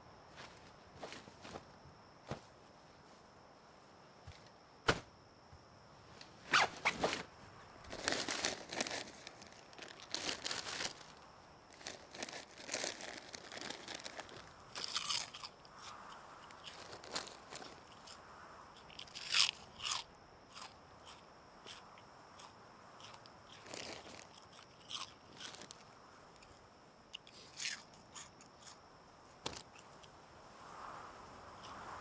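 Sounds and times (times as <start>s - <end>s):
plastic food packet crackling: 7.9s - 15.5s, 16.7s - 17.8s, 23.6s - 25.8s.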